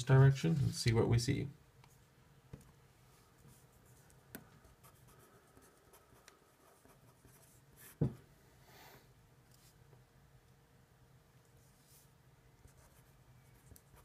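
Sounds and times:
knock: 8.0s - 8.2s.

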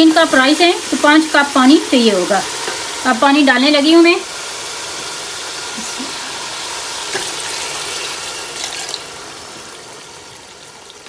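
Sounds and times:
water pouring into metal pot: 6.3s - 11.0s.

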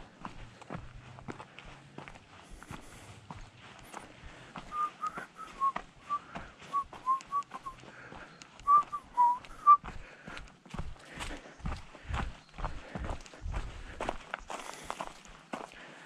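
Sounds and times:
footsteps: 0.0s - 16.0s
person whistling a tune: 4.7s - 7.8s, 8.6s - 9.8s.

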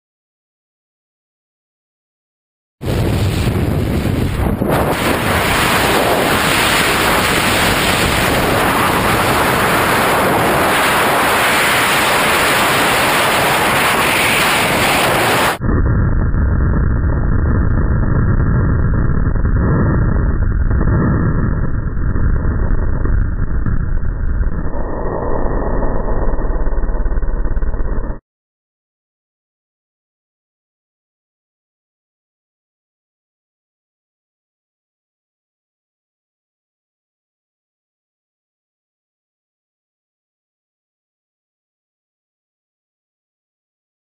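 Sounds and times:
muffled low rumble: 2.8s - 11.4s, 12.1s - 28.2s
wind buffeting microphone: 2.9s - 25.0s.

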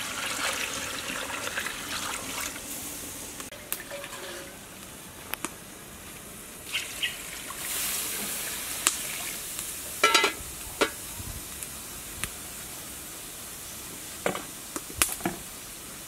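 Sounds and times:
water pouring into pot: 0.0s - 2.8s, 3.5s - 4.8s, 6.7s - 9.8s
metal lid clanking: 10.0s - 11.0s.

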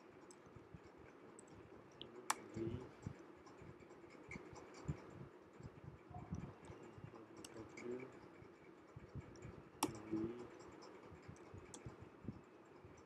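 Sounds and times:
keyboard typing: 9.0s - 12.0s.

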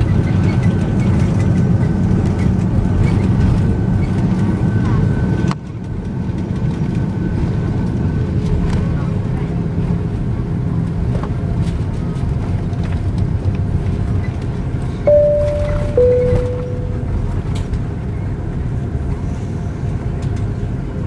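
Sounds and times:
airliner engines rumbling in cabin: 0.0s - 21.0s
two-tone cabin chime: 15.1s - 17.4s.

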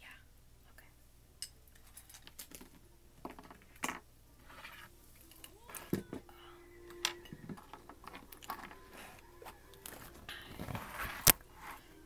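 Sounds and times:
pages rustling: 7.6s - 12.0s.

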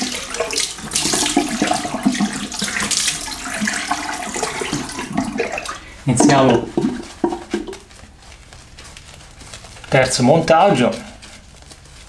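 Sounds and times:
tap water splashing in sink: 0.0s - 7.8s.

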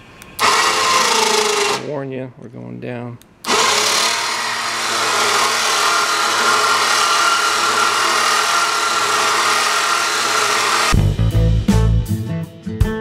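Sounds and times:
electric motor whine: 3.5s - 11.0s.

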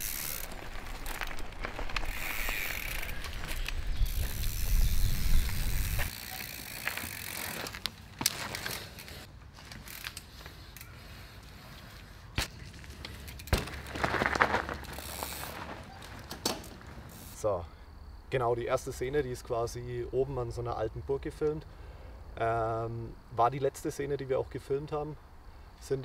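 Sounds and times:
mountain bike rolling: 0.0s - 17.5s.

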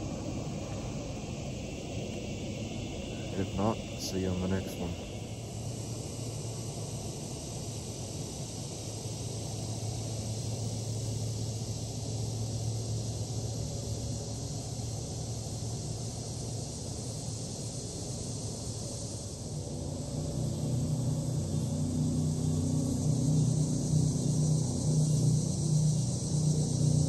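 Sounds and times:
high hiss: 0.0s - 20.6s.

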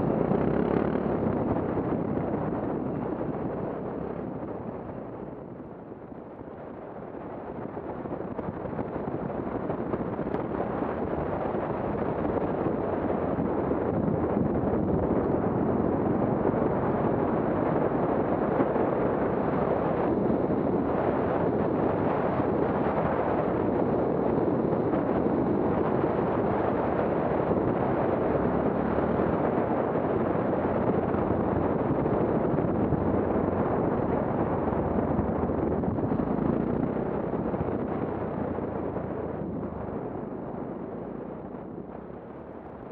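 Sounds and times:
wind rushing on microphone: 0.0s - 42.9s.

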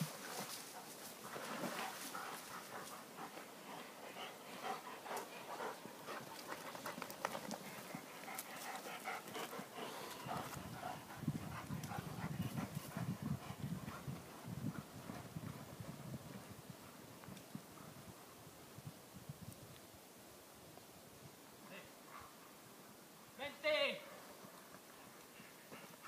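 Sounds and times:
paws tapping and rustling: 0.0s - 17.9s, 24.4s - 26.0s
dogs panting: 0.2s - 15.9s, 24.4s - 26.0s.

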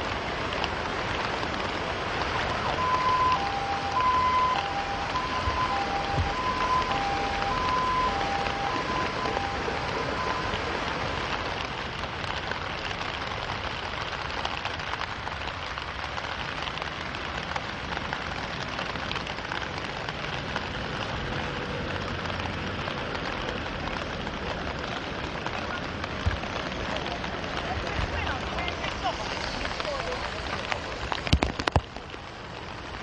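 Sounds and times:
rain falling: 0.0s - 33.0s.

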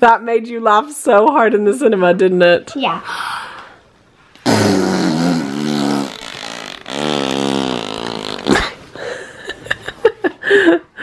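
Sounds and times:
girl blowing raspberries: 4.4s - 8.7s.

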